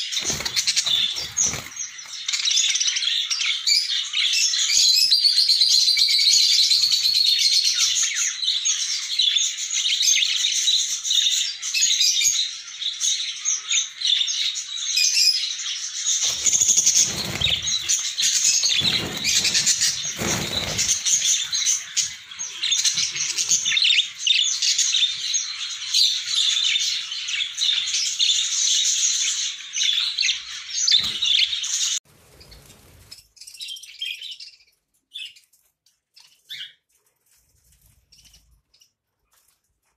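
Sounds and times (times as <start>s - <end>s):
wings fluttering and rustling: 0.0s - 2.7s, 16.1s - 25.3s, 30.9s - 33.4s, 36.9s - 39.9s
budgerigars chattering and chirping: 0.0s - 4.6s, 12.3s - 31.9s.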